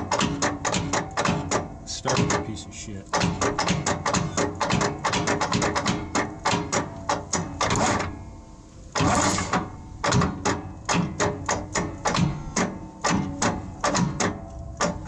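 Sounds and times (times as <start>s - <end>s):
metallic clicking and tapping: 0.0s - 8.1s, 9.0s - 15.0s
rasping scrape: 9.0s - 9.7s.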